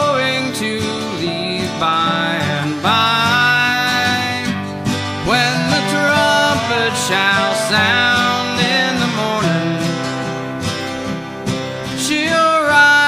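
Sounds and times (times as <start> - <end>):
slide guitar lead: 0.0 - 13.0
strummed acoustic guitar: 0.0 - 13.0.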